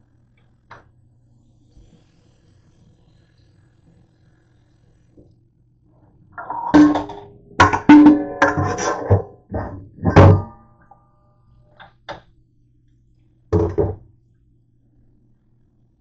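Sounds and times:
metal bowl clanking against dishes: 6.4s - 10.7s.

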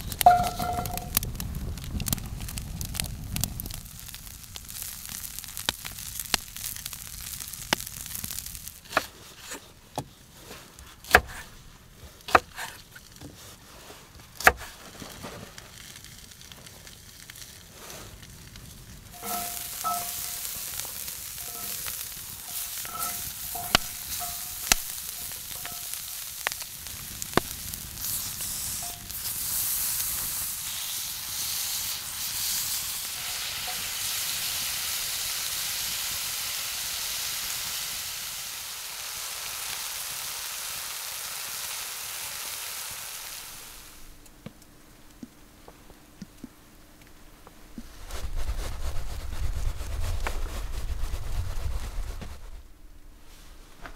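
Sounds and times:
food sizzling in a skillet: 0.0s - 1.2s, 3.7s - 9.0s, 19.1s - 44.2s
crackling pops of fire: 0.0s - 48.2s.

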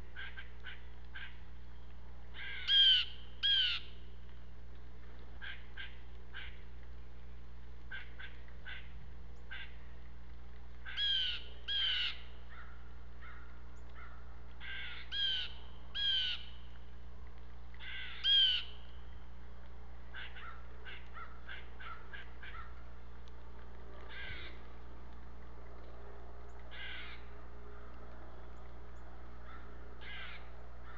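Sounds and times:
blue jays rasping calls: 2.4s - 3.9s.

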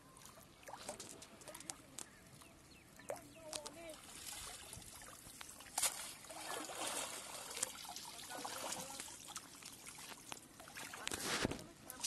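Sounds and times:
water trickling from a net: 0.0s - 12.0s
water splash: 4.0s - 11.6s.

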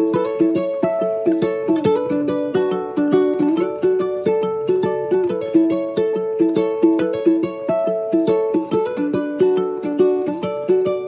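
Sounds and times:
lively plucked-string tune: 0.0s - 11.0s.

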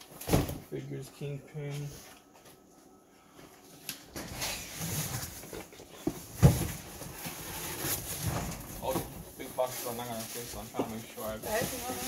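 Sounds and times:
cardboard boxes rustling: 4.2s - 12.0s.

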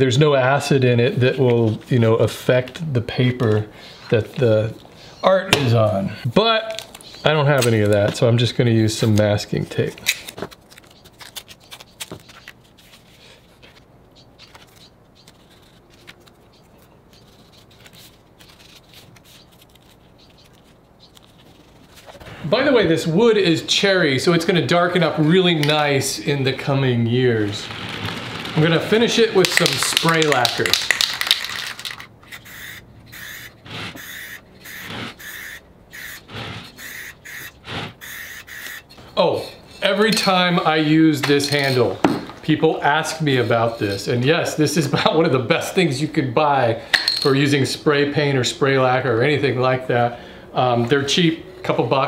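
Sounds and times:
hand smoothing paper: 14.4s - 22.3s
masking tape tearing: 17.2s - 22.1s, 27.4s - 38.9s.

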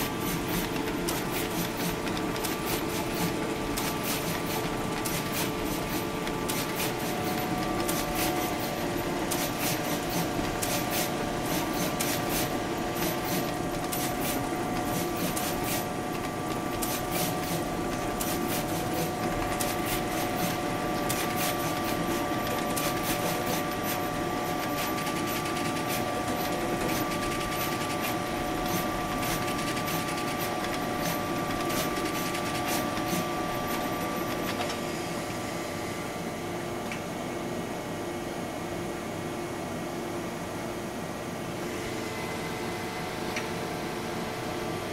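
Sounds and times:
rapid sharp machine clicks: 0.0s - 34.8s
machine hum with whining tones: 0.0s - 44.9s.

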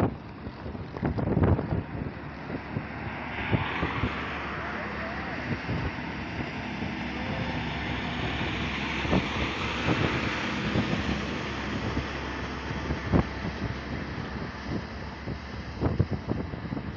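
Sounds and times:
wind buffeting microphone: 0.0s - 16.9s
lorry passing: 1.4s - 16.3s.

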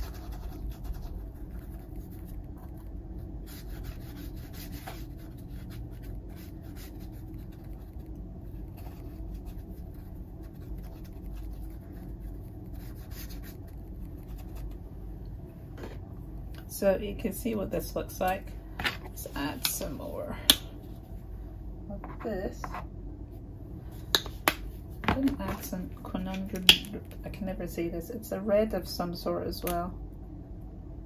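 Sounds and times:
steady low hum: 0.0s - 31.0s
paintbrush scrubbing on canvas: 3.4s - 14.8s.

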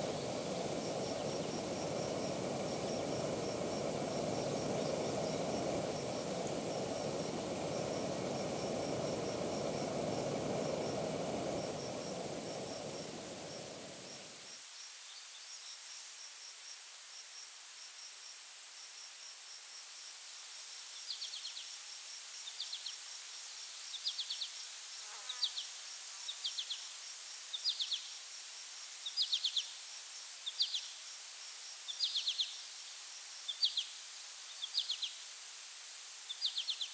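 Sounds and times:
low rushing noise: 0.0s - 14.5s
insects trilling: 0.0s - 14.6s
cricket chirping: 0.0s - 24.7s.

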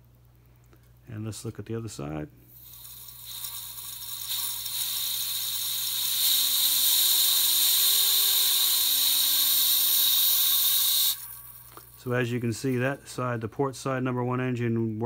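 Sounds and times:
wavering fan whir: 2.9s - 13.0s.

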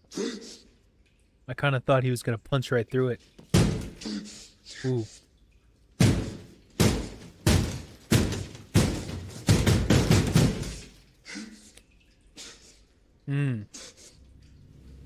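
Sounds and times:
fists pounding on wall: 3.5s - 4.0s, 6.0s - 11.0s.

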